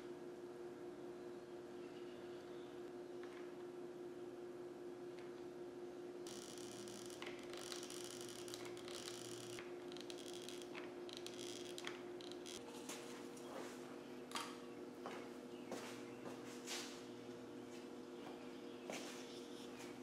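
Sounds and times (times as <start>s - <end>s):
steady low hum: 0.0s - 20.0s.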